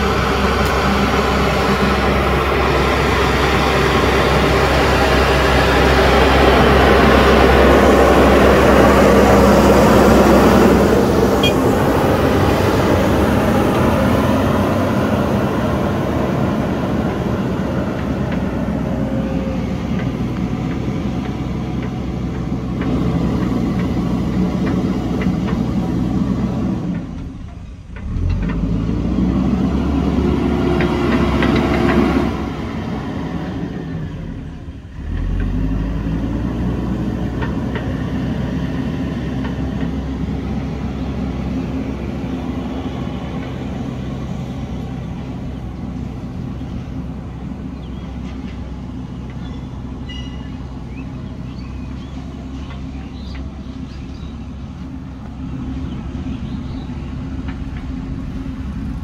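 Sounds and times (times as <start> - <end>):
backhoe diesel engine running: 0.0 - 59.0.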